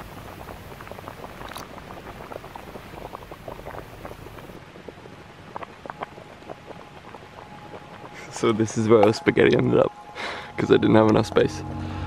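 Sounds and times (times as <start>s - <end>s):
gas stove hiss: 0.0s - 4.6s
pot of water boiling: 0.0s - 10.7s.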